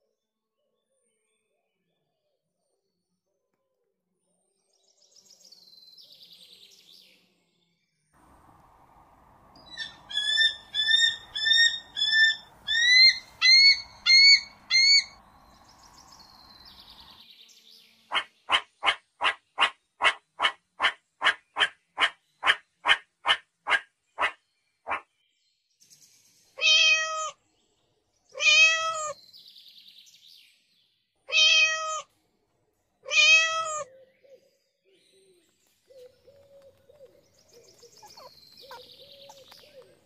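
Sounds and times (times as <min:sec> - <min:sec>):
low hiss: 0:08.2 - 0:17.9
short sharp pulsed calls: 0:09.6 - 0:15.2
rising chirp-like animal calls: 0:09.6 - 0:17.1, 0:37.5 - 0:40.0.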